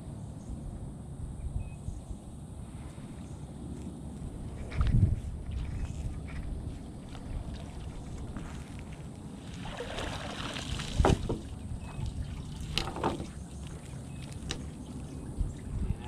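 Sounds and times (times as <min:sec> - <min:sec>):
water streaming off net: 0:09.4 - 0:13.9
wet net landing on wooden planks: 0:09.7 - 0:11.5.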